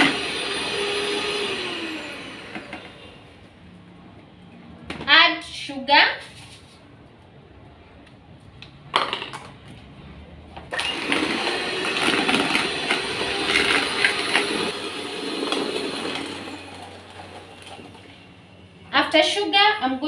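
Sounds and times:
electric hand mixer motor: 0:00.0 - 0:03.0, 0:10.7 - 0:18.0.

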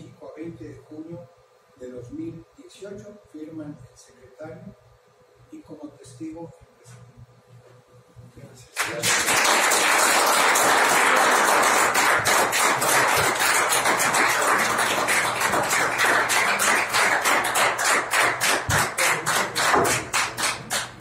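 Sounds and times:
group applauding: 0:08.8 - 0:21.0.

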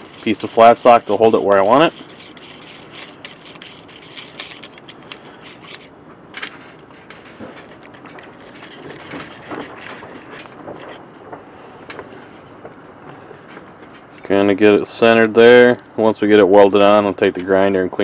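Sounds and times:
metal clamp screw clicking and scraping: 0:00.0 - 0:11.0.

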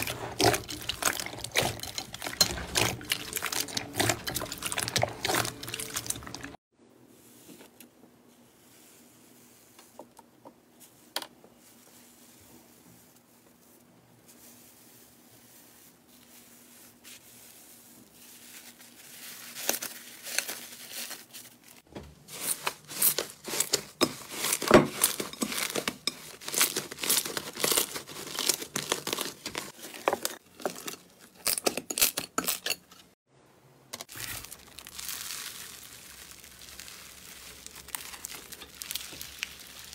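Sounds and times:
slime crackling and popping: 0:34.0 - 0:39.9.

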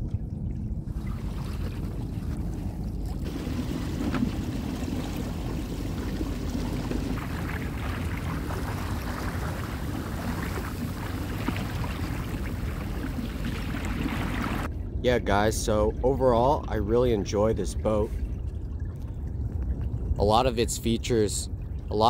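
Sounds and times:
water splashing at kayak bow: 0:00.0 - 0:14.7
wind buffeting microphone: 0:00.0 - 0:22.0.

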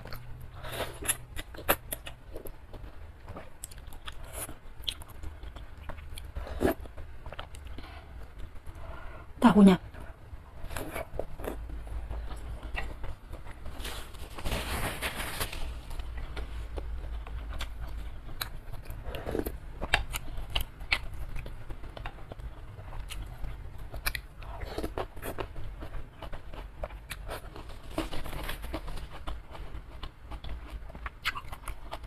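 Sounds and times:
wet chewing clicks and smacks: 0:16.2 - 0:27.7, 0:28.7 - 0:32.0.

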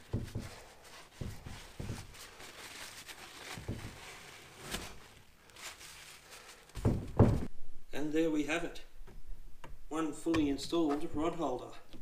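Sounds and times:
soft handling thuds: 0:00.0 - 0:05.1, 0:06.7 - 0:07.5
paper towel rubbing and rustling: 0:00.0 - 0:07.5.

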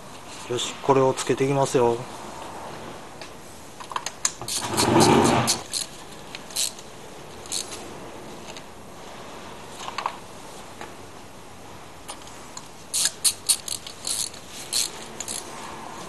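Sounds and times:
metal tools clicking and clinking: 0:04.5 - 0:06.8, 0:12.9 - 0:15.5.

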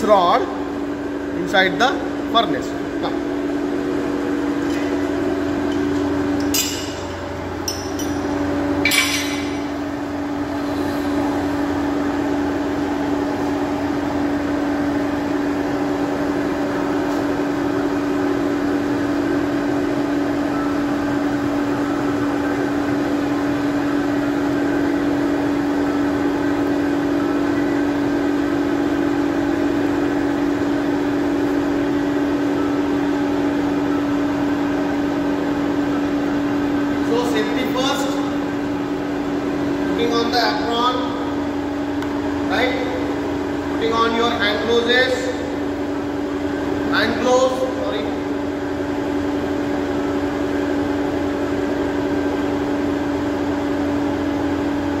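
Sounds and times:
air blower humming: 0:00.0 - 0:55.0.

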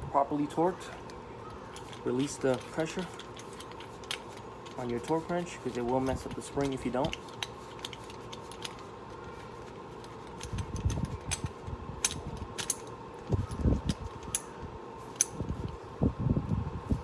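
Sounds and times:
metal tools clicking and clinking: 0:01.6 - 0:08.9, 0:10.0 - 0:15.4.

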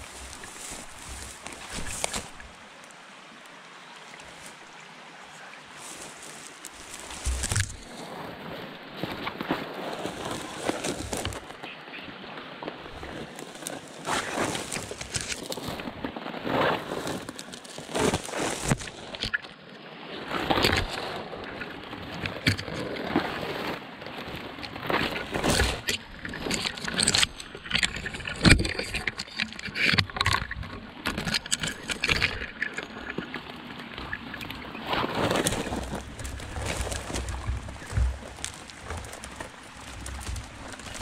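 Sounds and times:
brush scraping against person: 0:00.0 - 0:02.5, 0:05.8 - 0:08.2, 0:09.0 - 0:11.6, 0:12.9 - 0:19.2, 0:34.8 - 0:41.0
branches cracking: 0:00.0 - 0:02.9, 0:05.8 - 0:19.6, 0:20.4 - 0:41.0.

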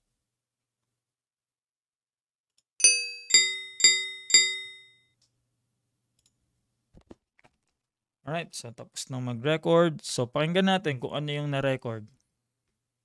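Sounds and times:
cowbell strikes: 0:02.8 - 0:04.8.

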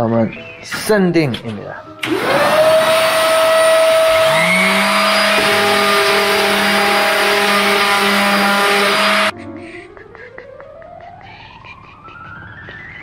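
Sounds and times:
electric power sander running: 0:02.0 - 0:09.3
low motor tone spinning up: 0:02.0 - 0:09.3.

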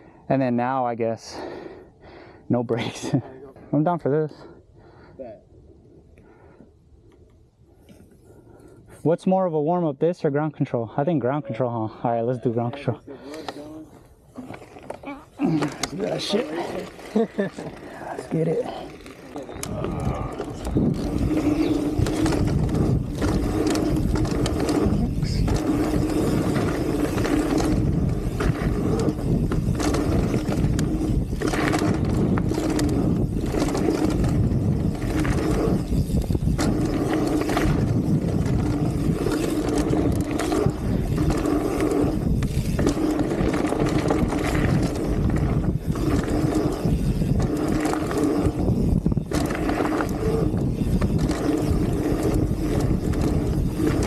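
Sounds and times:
bike tyres rolling over dirt: 0:13.4 - 0:54.0
bike knocks and rattles: 0:19.4 - 0:54.0
wind on microphone: 0:19.6 - 0:54.0.

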